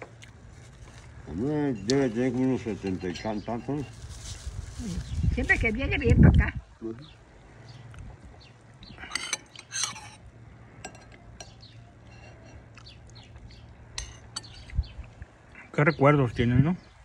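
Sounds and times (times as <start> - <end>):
low steady hum: 0.0 - 17.0
spoon clinking on ceramic bowl: 2.8 - 3.9, 9.0 - 10.2.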